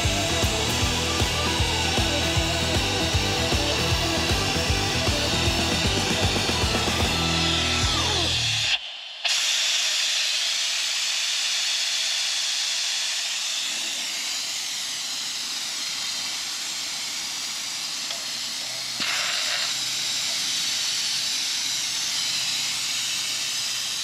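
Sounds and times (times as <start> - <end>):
vacuum brake bleeder hissing: 0.0 - 24.0.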